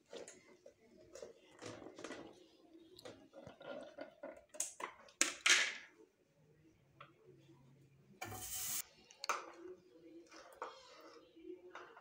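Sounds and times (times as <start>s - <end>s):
short burst of hiss: 8.2s - 8.8s.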